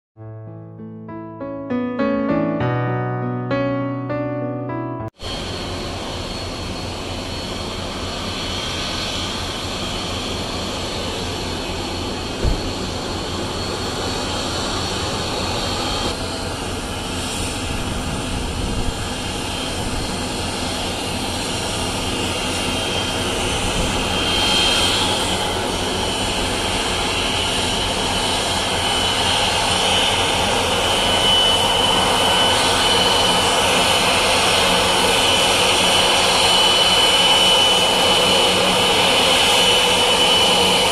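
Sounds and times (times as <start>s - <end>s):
high engine whine: 5.2s - 40.9s
jet engines taxiing: 5.2s - 40.9s
brief thump: 12.4s - 12.7s.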